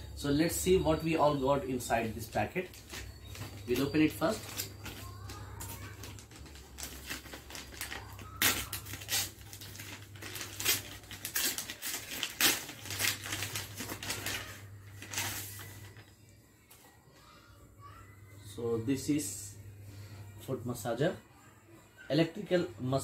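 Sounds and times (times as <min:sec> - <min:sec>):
paper envelope tearing and rustling: 0:02.7 - 0:16.0.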